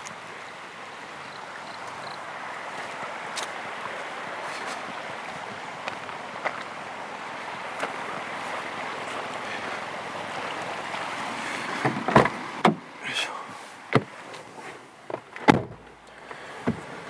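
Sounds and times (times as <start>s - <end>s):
car door slamming: 11.8s - 12.8s, 15.4s - 15.9s
car door clunks: 11.8s - 12.9s, 13.9s - 14.2s, 15.1s - 15.9s.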